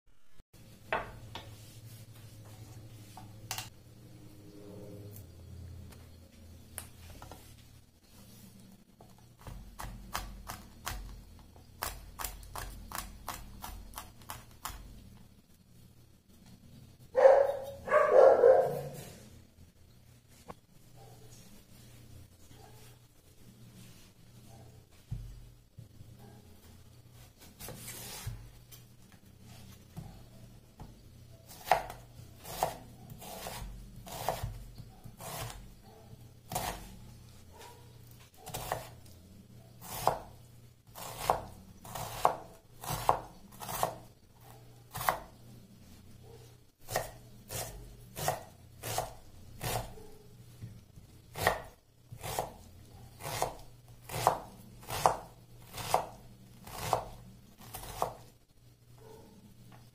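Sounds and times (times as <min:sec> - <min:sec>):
knife chopping on wooden board: 0:31.5 - 0:34.6, 0:35.2 - 0:35.6, 0:36.5 - 0:36.9, 0:39.8 - 0:40.3, 0:41.0 - 0:44.0, 0:46.9 - 0:49.9, 0:51.4 - 0:52.6, 0:53.2 - 0:57.1, 0:57.7 - 0:58.2.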